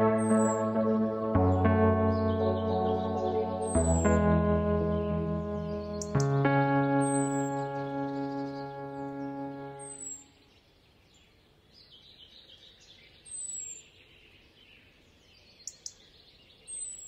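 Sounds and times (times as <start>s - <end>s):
held music chord: 0.0s - 10.2s
small birds chirping: 0.0s - 10.3s.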